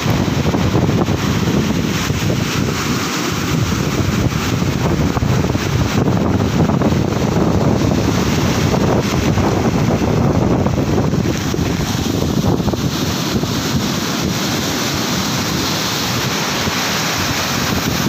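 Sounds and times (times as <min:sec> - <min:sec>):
storm surf breaking on sand: 0:00.0 - 0:18.0
wind buffeting microphone: 0:00.0 - 0:18.0.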